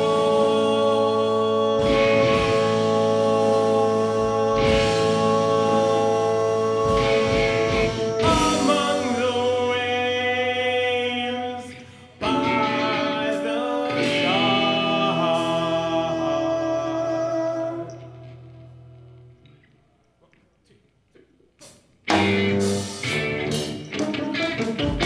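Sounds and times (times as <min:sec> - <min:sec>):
band playing droning tones: 0:00.0 - 0:10.6
drum and cymbal hits: 0:01.8 - 0:09.6.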